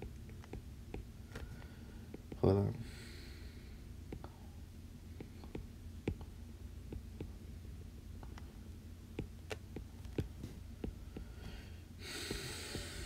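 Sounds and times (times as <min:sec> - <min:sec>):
low steady hum: 0:00.0 - 0:13.0
stylus tapping on glass screen: 0:05.2 - 0:06.3.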